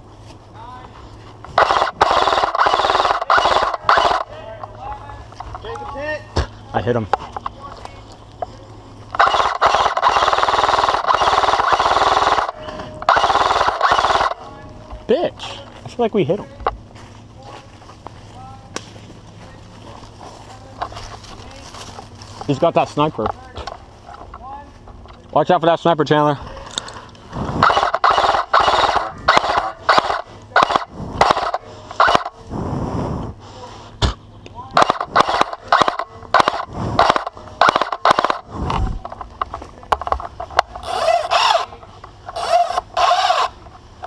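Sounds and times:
airsoft gun firing bursts: 1.6 - 4.3, 9.1 - 14.4, 27.6 - 32.3, 34.8 - 38.5.

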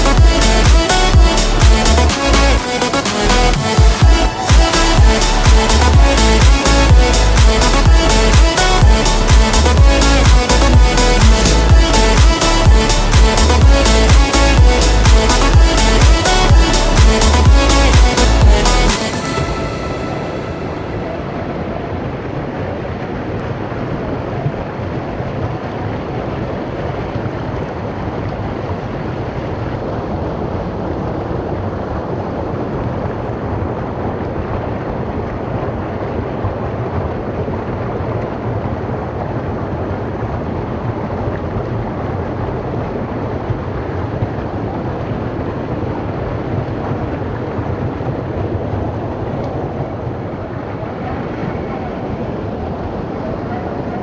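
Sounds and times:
small waterfall rushing: 0.0 - 22.0.

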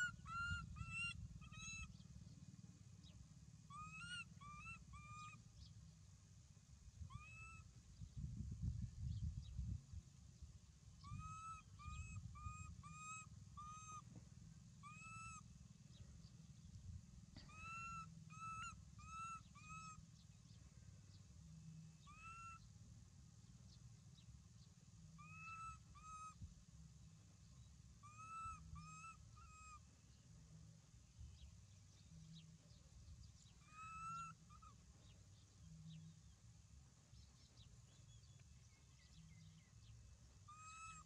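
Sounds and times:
short pitched animal calls: 0.0 - 2.0, 17.4 - 20.0, 25.2 - 26.4, 28.0 - 29.9, 33.4 - 36.1, 40.4 - 41.0.

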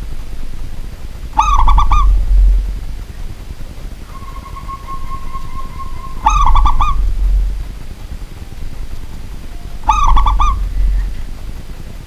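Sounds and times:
dove cooing: 1.3 - 3.2, 4.0 - 8.0, 9.6 - 11.5.

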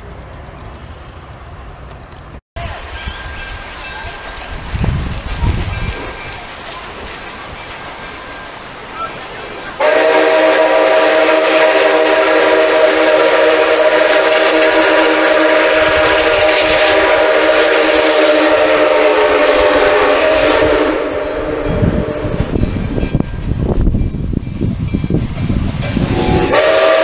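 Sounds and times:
steam whistle blowing: 9.8 - 22.6, 26.0 - 27.0.

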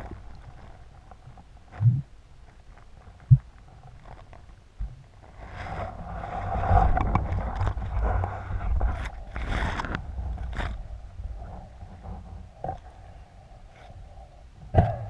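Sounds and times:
low rumble: 0.0 - 2.3
scattered crackles: 0.0 - 12.9.

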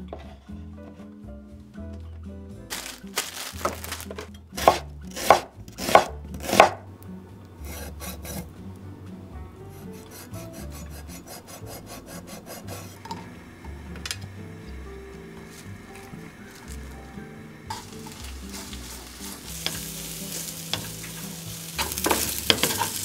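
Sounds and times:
knife slicing on wooden board: 4.6 - 6.8
knife rasping skin: 10.0 - 13.0.

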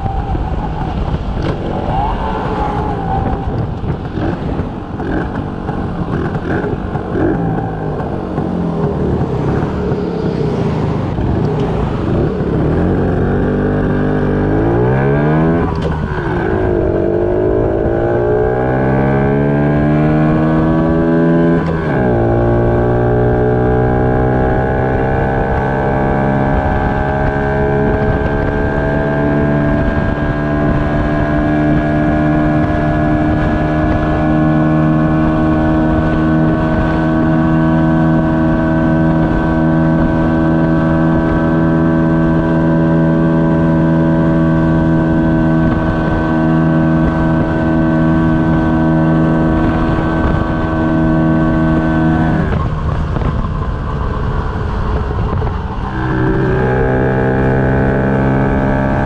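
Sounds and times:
two-stroke motorcycle engine running: 3.9 - 10.0.

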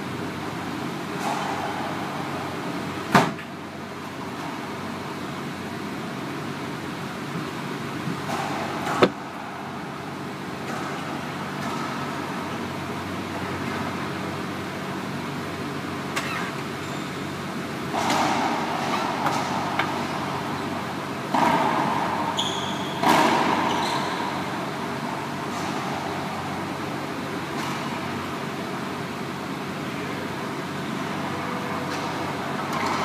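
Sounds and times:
steady background hum: 0.0 - 33.0
racquetball striking court: 1.1 - 3.4, 7.5 - 14.6, 17.8 - 29.3.

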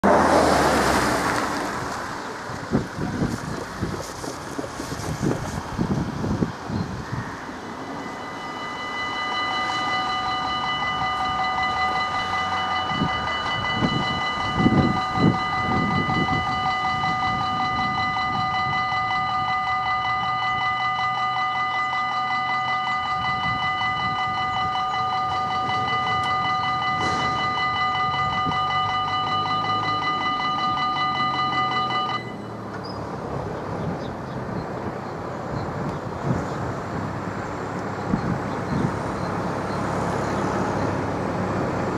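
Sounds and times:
level-crossing warning bell: 7.4 - 32.7.

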